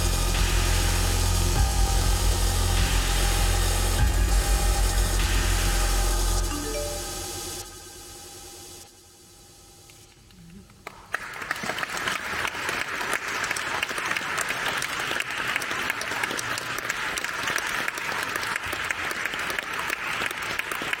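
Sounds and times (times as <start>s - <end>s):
audience applauding: 10.7s - 21.0s.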